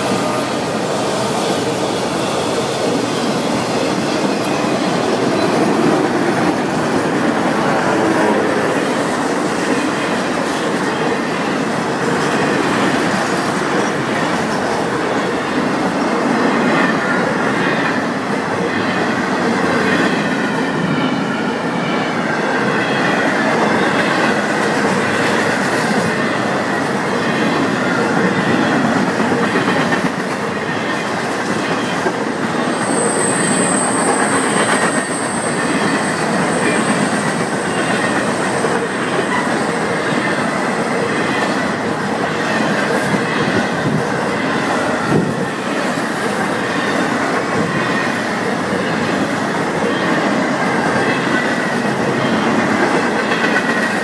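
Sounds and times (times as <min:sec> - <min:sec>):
steel wheels rumbling on rail: 0:00.0 - 0:54.0
wheel squeal: 0:32.6 - 0:38.2, 0:41.2 - 0:54.0.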